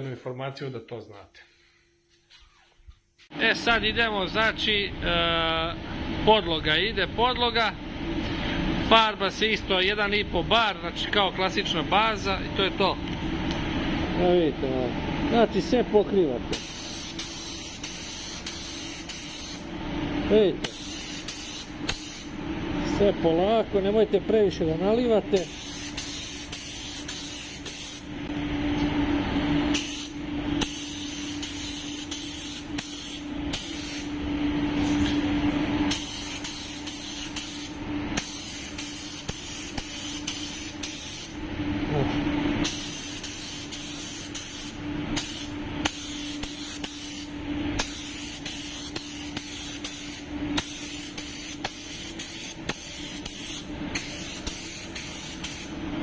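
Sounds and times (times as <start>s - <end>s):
steady low hum: 0.0s - 56.0s
paint spray gun hissing: 16.6s - 19.6s, 20.6s - 22.3s, 25.4s - 28.0s, 29.8s - 34.1s, 35.9s - 41.3s, 42.6s - 55.7s.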